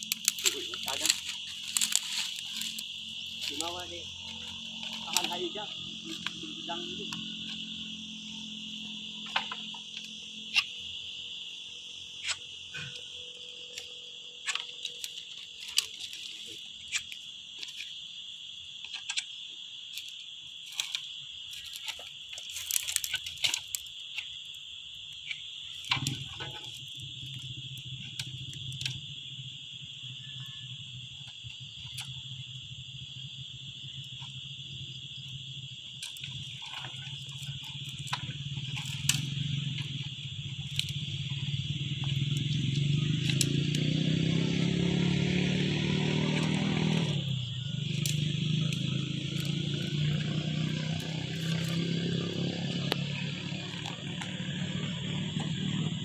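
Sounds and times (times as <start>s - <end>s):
twigs snapping under footsteps: 0.0s - 7.8s, 12.2s - 18.0s, 19.9s - 24.3s, 36.0s - 41.2s, 42.0s - 55.6s
high-pitched insect chorus: 0.0s - 56.0s.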